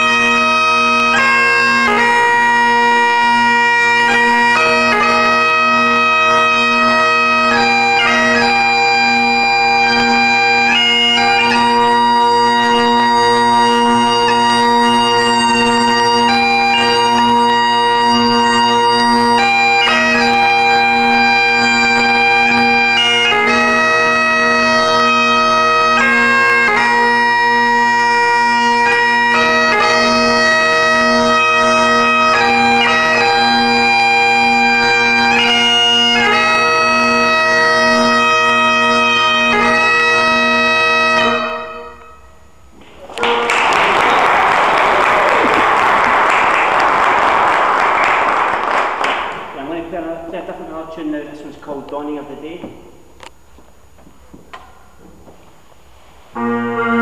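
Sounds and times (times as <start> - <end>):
bagpipes playing a tune: 0.0 - 49.0, 56.3 - 57.0
audience applause: 42.8 - 49.6.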